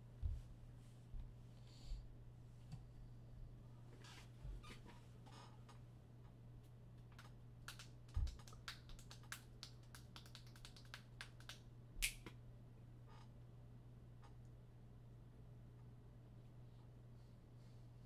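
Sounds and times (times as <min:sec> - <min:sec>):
steady low hum: 0:00.0 - 0:10.1.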